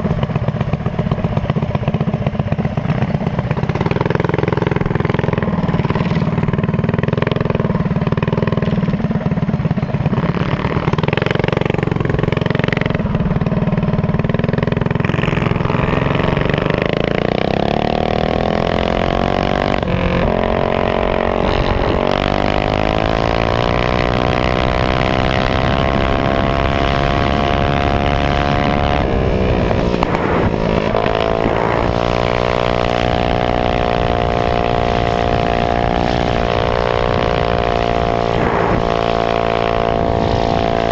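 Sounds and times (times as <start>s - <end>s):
engine running at high revs: 0.0s - 40.9s.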